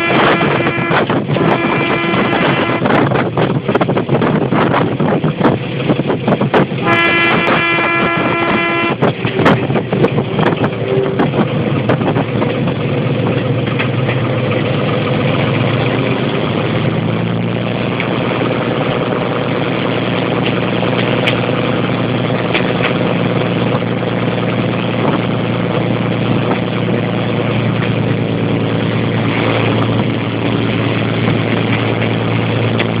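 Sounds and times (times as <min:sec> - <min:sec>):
train horn: 0:00.0 - 0:03.1, 0:06.8 - 0:11.4
low steady engine note: 0:00.0 - 0:33.0
train engine and wheels drone: 0:00.0 - 0:33.0.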